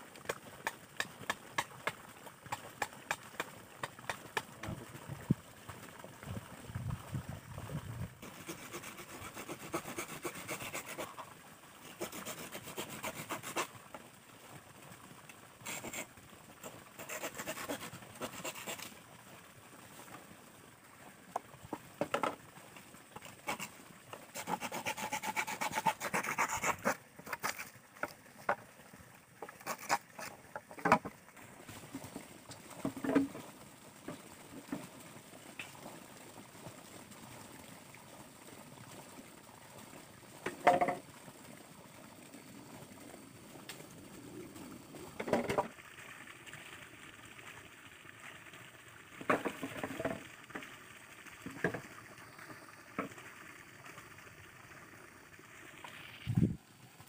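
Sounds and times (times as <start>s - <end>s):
knife scraping bamboo: 8.2s - 11.2s, 11.9s - 13.7s, 15.7s - 16.1s, 17.0s - 18.9s, 23.2s - 23.7s, 24.3s - 27.7s, 29.6s - 30.4s.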